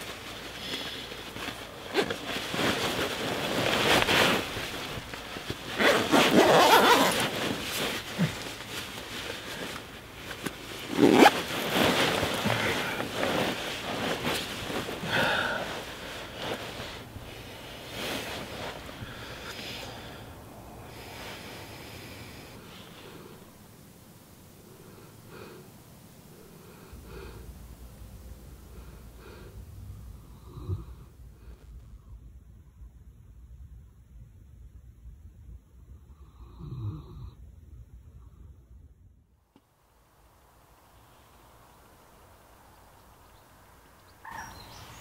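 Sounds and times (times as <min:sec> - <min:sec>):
sleeping bag rustling: 0:00.0 - 0:23.6.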